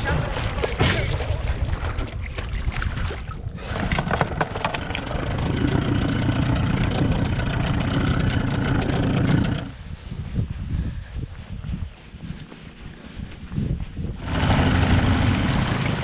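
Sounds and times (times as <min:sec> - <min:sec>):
boat motor running: 0:03.6 - 0:09.8, 0:14.2 - 0:16.0.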